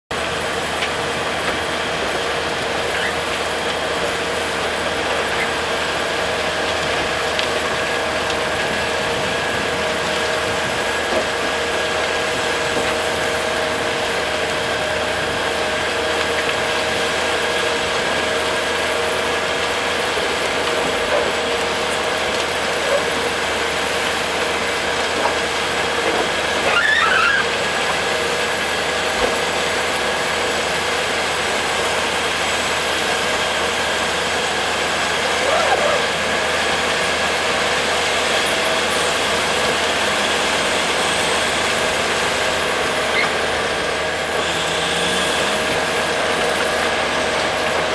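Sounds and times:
loud machinery squeal: 2.8s - 3.3s, 26.5s - 27.7s, 35.2s - 36.6s, 43.0s - 43.5s.

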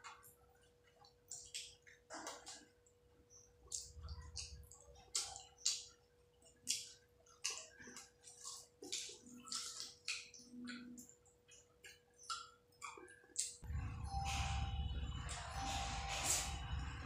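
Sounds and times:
wet squelches of hand mashing rice: 3.6s - 13.6s.

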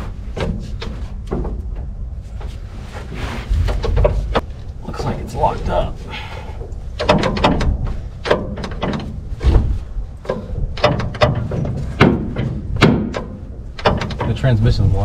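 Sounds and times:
gear lever metal clunks and rattles: 6.6s - 14.6s.

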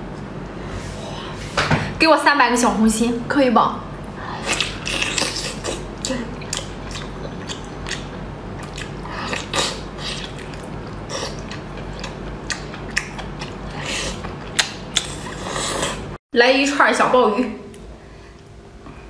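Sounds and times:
steady low hum: 0.0s - 19.0s
wet chewing and sucking sounds: 4.4s - 16.2s.

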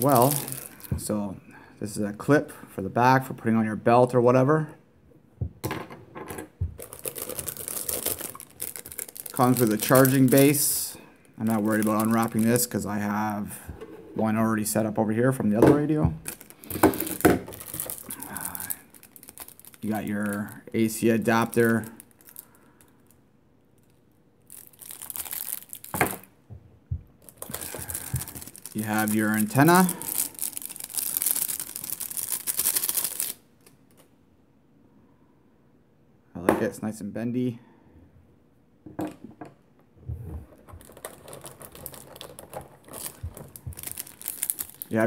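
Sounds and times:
plastic bag crinkling: 0.0s - 1.1s, 6.7s - 13.4s, 15.8s - 23.2s, 23.8s - 26.3s, 27.2s - 34.0s, 40.5s - 45.0s
plastic packaging clicks and crackles: 6.8s - 10.7s, 16.2s - 23.2s, 23.8s - 26.3s, 27.2s - 34.1s, 40.5s - 45.0s.

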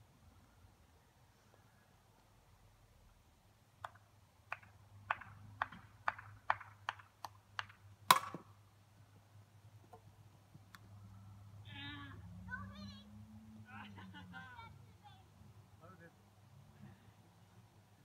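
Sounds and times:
plastic bat hitting ball: 3.8s - 8.5s.

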